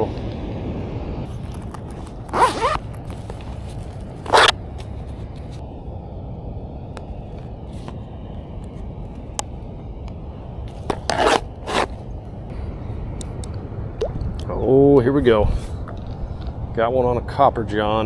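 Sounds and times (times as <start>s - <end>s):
zipper pulled open: 1.4s - 4.6s, 10.9s - 12.0s.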